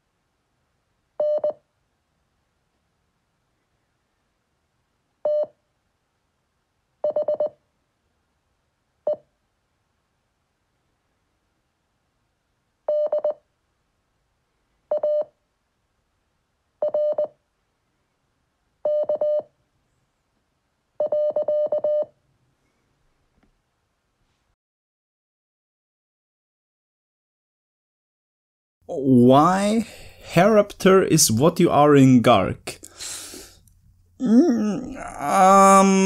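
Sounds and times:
morse code beeps: 18.9s - 19.4s.

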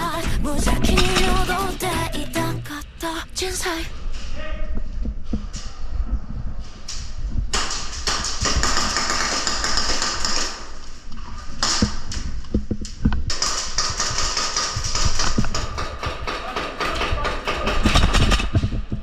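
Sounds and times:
airsoft guns firing: 7.5s - 10.9s, 13.3s - 18.6s.

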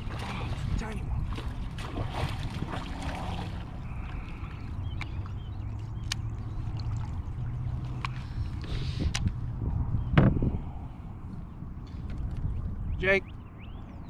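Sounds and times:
waves lapping against kayak hull: 0.0s - 9.1s.

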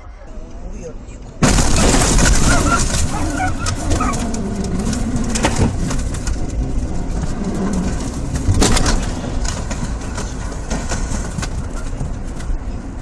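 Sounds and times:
car rushing and rumbling: 0.0s - 13.0s.

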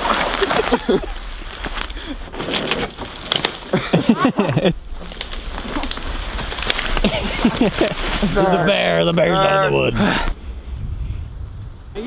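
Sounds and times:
branches rustling and snapping: 0.0s - 9.3s.

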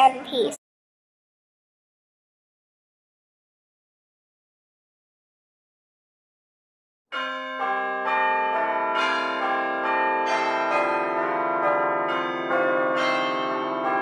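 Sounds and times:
bell-like chimes: 7.1s - 14.0s.

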